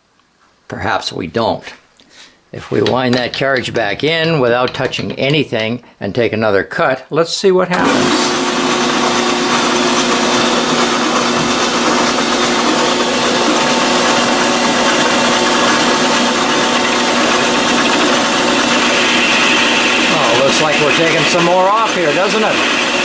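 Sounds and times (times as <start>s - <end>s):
lathe tool cutting metal: 7.8s - 23.0s
metal lathe whining: 7.8s - 23.0s.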